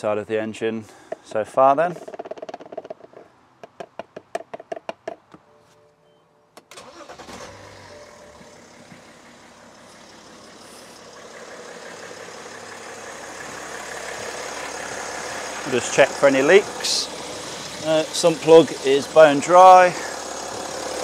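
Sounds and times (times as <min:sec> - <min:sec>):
diesel engine starting and idling: 0:06.6 - 0:21.0.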